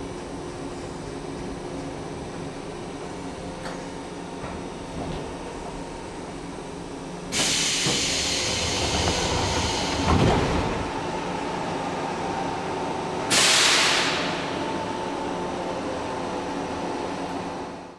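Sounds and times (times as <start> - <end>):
compressed air hissing: 13.3 - 14.3.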